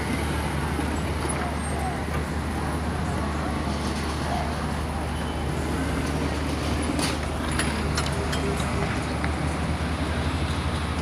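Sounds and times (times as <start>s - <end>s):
vehicles passing on dirt track: 0.0s - 11.0s.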